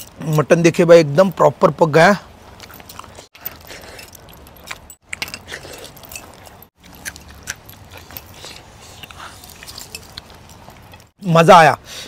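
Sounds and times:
man chewing and biting: 2.5s - 11.1s.

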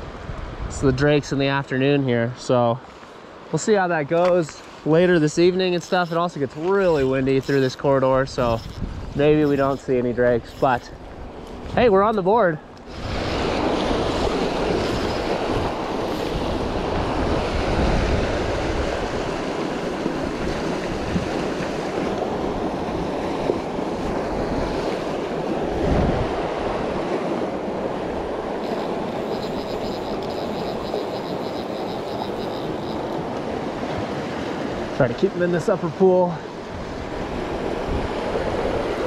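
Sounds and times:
fly reel clicking: 5.4s - 11.0s, 14.8s - 15.4s, 16.0s - 16.6s, 28.6s - 33.2s.

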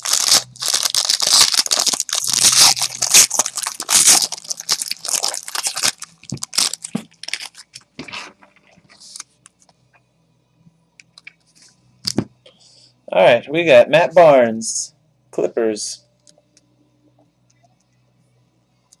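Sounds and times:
card pack wrappers crinkling and tearing: 0.0s - 9.3s.

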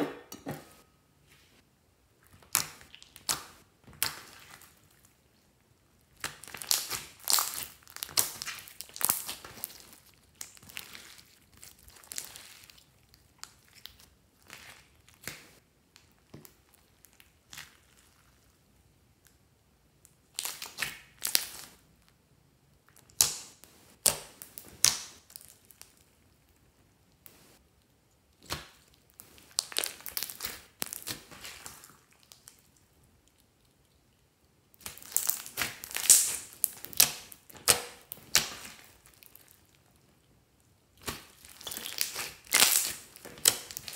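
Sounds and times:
slime squished by hand crackling: 2.3s - 4.9s, 6.0s - 18.1s, 20.2s - 21.8s, 28.2s - 32.8s, 34.7s - 39.8s, 40.9s - 43.9s.

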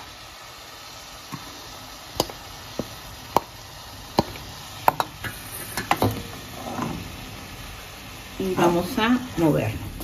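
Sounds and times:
wooden spoon knocking on bowl: 4.2s - 5.2s.

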